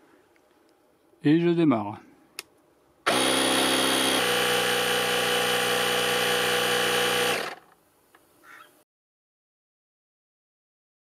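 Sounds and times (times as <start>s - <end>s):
air compressor running: 3.1s - 7.6s.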